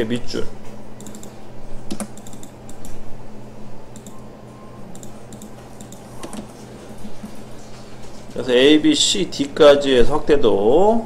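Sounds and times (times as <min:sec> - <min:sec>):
low electrical hum: 0:00.0 - 0:11.0
mouse and keyboard clicks: 0:04.9 - 0:06.5.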